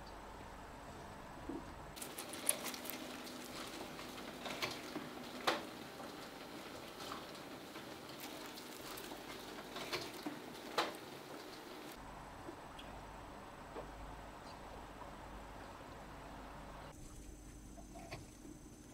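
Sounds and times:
mouse scurrying over straw: 0:02.0 - 0:12.0.

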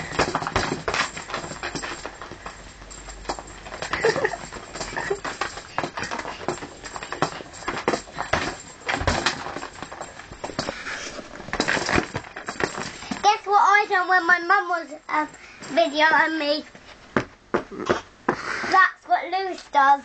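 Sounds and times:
child's feet stomping on floor: 0:00.0 - 0:02.5, 0:03.2 - 0:13.4, 0:17.1 - 0:18.8.

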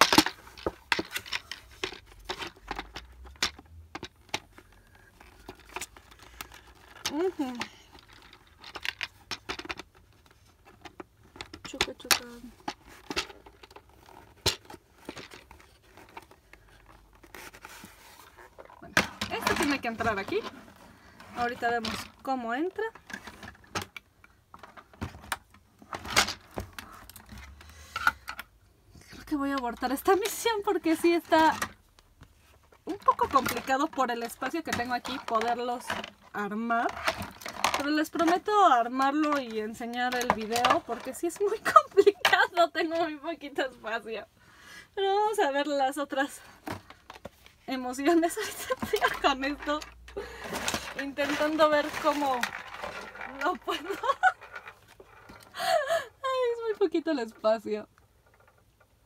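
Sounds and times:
plastic parts clicking: 0:00.0 - 0:16.4.

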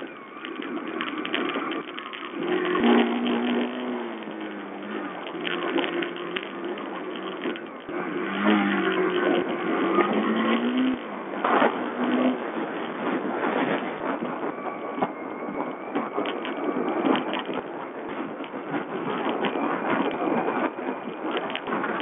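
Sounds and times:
motorcycle engine revving: 0:00.0 - 0:14.0
wind noise: 0:00.0 - 0:22.0.

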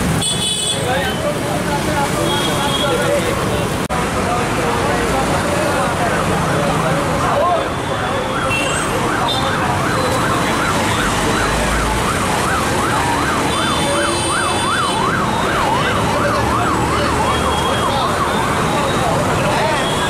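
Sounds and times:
street noise: 0:00.0 - 0:20.0.

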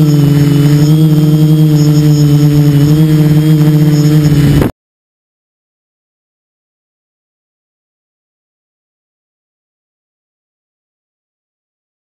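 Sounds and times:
drone motors and propellers humming: 0:00.0 - 0:04.7.

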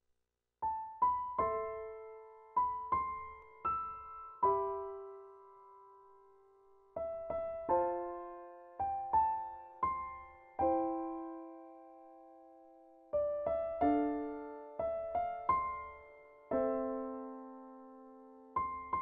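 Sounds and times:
piano music: 0:00.6 - 0:19.0.

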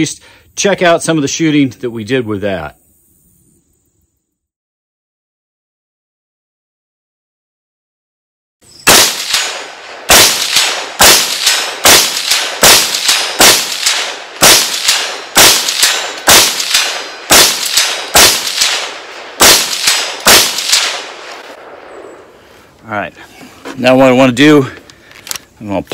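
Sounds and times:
rifle shots echoing: 0:08.9 - 0:22.4.

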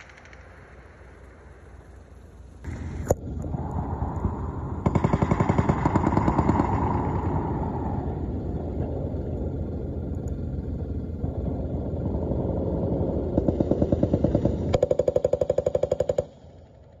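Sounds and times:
automatic gunfire: 0:04.8 - 0:07.8, 0:13.3 - 0:16.5.

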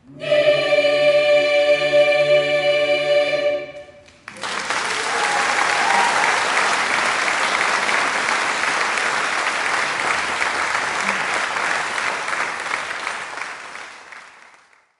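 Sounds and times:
large audience applauding: 0:04.1 - 0:14.9.

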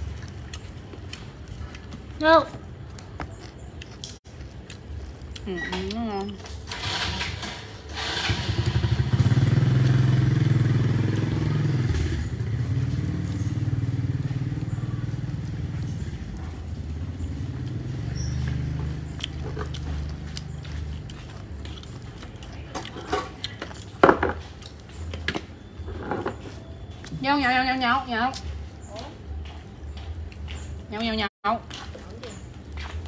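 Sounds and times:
motorbike engine running: 0:08.0 - 0:21.0.

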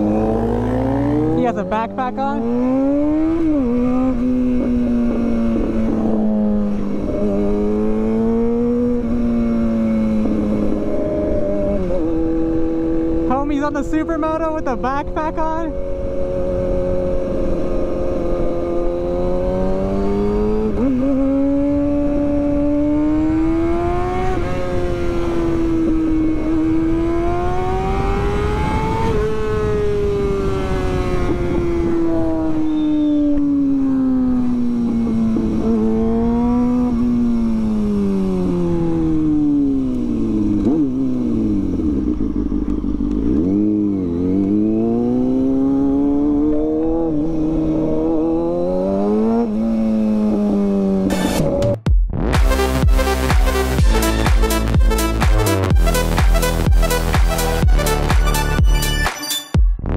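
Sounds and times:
motorcycle engine revving: 0:00.0 - 0:58.7
wind rush: 0:15.6 - 0:33.2.

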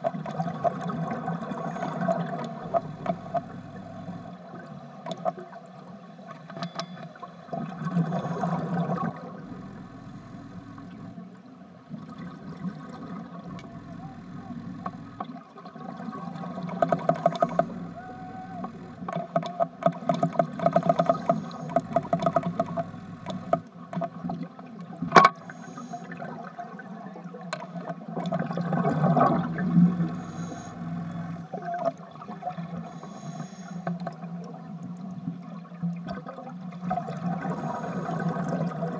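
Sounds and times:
underwater regulator bubbling: 0:00.8 - 0:04.4, 0:12.8 - 0:15.3, 0:16.0 - 0:23.7, 0:28.4 - 0:31.6
low hum: 0:02.4 - 0:04.4, 0:09.2 - 0:11.2, 0:13.4 - 0:15.2, 0:16.6 - 0:19.1, 0:20.7 - 0:23.7, 0:29.1 - 0:31.5.

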